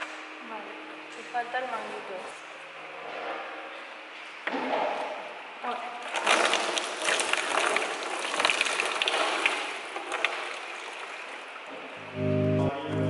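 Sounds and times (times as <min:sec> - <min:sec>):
coolant splashing onto floor: 0:06.0 - 0:11.5
music: 0:12.0 - 0:13.0.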